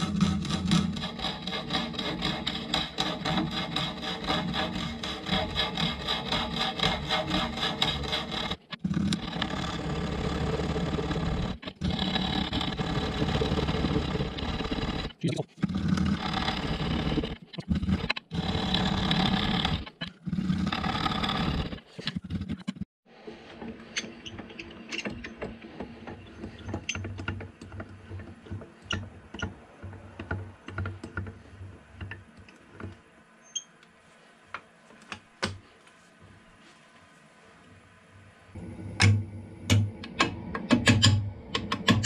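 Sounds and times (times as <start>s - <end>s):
lathe humming: 0.0s - 15.1s
gouge shearing wood on lathe: 0.0s - 22.6s.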